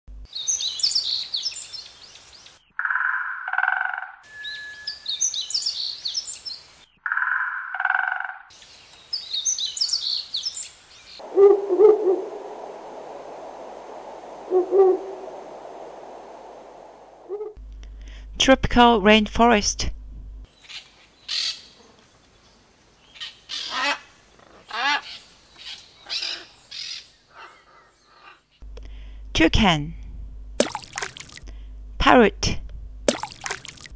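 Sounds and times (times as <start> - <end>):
high twittering bird chirps: 4.3 - 7.3
lower two-part bird call: 11.2 - 12.6, 14.4 - 15.4
even bird calling: 11.2 - 12.7, 14.0 - 15.9.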